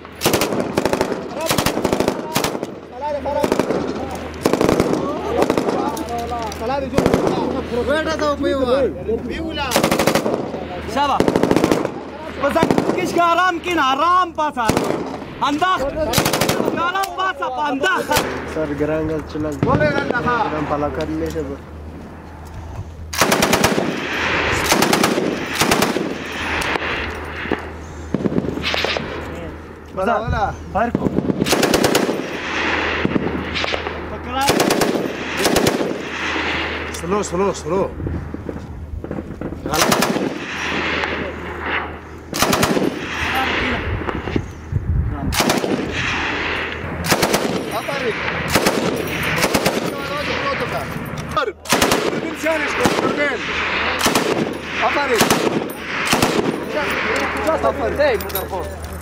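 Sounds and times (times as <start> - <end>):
machine gun bursts: 0.2 - 2.7, 9.7 - 10.4, 16.1 - 16.9, 23.2 - 26.6, 31.4 - 32.4, 34.4 - 36.1, 39.8 - 40.6, 42.4 - 43.3, 47.1 - 50.1, 51.7 - 53.1, 54.0 - 57.0
gunshot echoes: 51.7 - 57.2.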